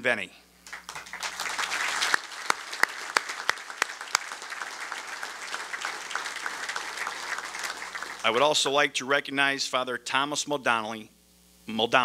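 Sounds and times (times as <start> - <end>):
audience applauding: 0.7 - 8.6.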